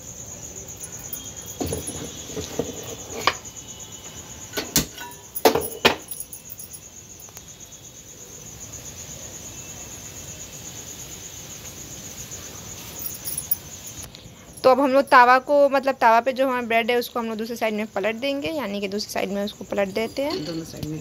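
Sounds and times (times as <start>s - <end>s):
cricket chirping: 0.0s - 21.0s
bread clattering on griddle: 4.5s - 6.1s.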